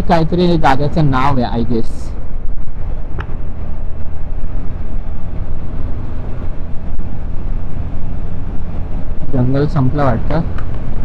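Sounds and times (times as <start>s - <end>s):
road noise: 0.0s - 11.0s
wind rumbling on microphone: 0.0s - 11.0s
motorcycle engine: 2.2s - 11.0s.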